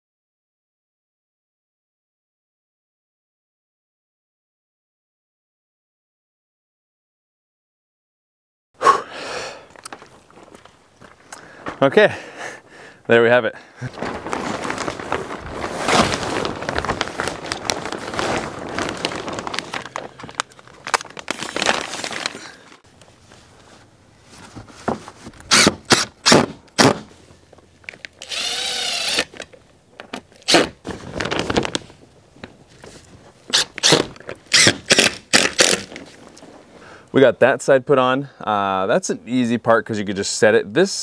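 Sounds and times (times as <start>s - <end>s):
plastic sheeting rustling: 13.8s - 25.4s, 30.5s - 34.0s
cordless drill driving screws: 28.2s - 29.4s, 33.5s - 35.8s.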